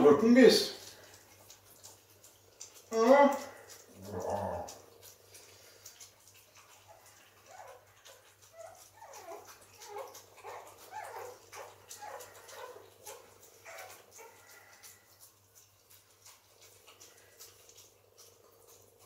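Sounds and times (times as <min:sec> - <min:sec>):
dogs eating clicking and smacking: 0:00.0 - 0:19.0
puppies whining and yipping: 0:06.6 - 0:15.1.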